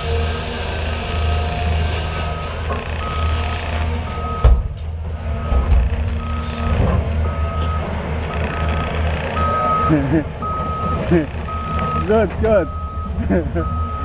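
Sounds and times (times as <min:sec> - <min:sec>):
heavy diesel machinery running: 0:00.0 - 0:14.0
backup alarm beeping: 0:04.1 - 0:04.7, 0:05.4 - 0:14.0.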